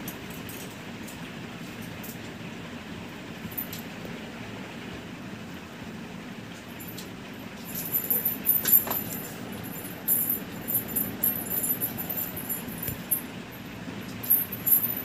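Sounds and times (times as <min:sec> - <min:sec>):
low background noise: 0:00.0 - 0:15.0
small collar bell jingling: 0:06.8 - 0:15.0.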